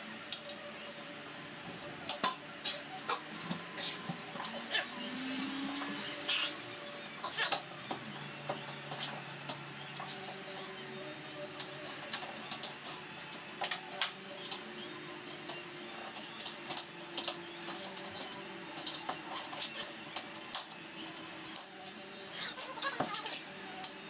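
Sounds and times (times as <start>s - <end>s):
rubber seal clicks and squeaks: 22.4s - 23.5s.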